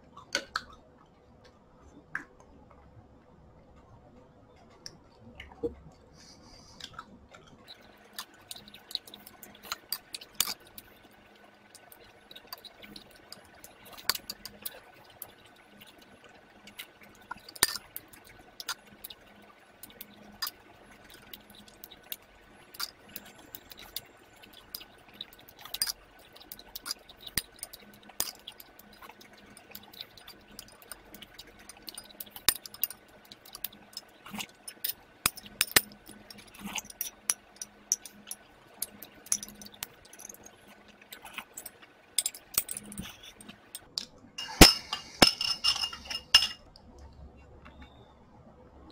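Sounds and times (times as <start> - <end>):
wet chewing and slurping: 6.8 - 43.9
metal spoon scraping a bowl: 25.6 - 40.5, 41.1 - 46.6.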